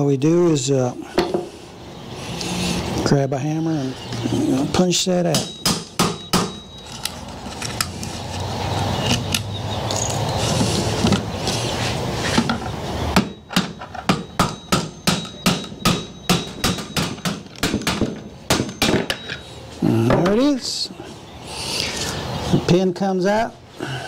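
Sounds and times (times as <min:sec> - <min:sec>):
hammer striking steel punch: 0:05.3 - 0:06.6, 0:13.2 - 0:19.3.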